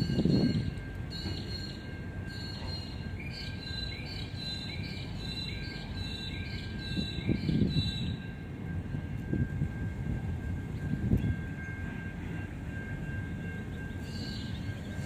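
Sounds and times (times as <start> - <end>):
wind buffeting microphone: 0.0 - 1.1, 6.7 - 15.0
freight train rolling past: 0.0 - 15.0.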